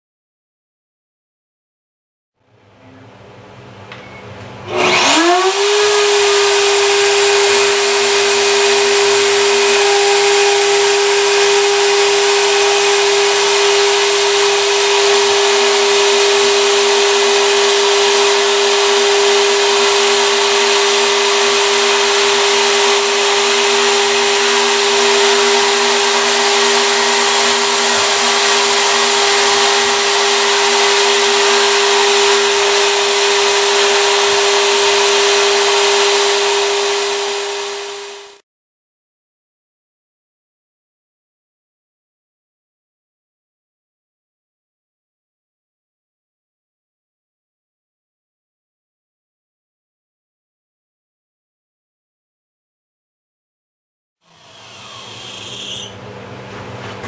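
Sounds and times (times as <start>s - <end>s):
router motor high whine: 4.6s - 38.4s, 54.2s - 56.0s.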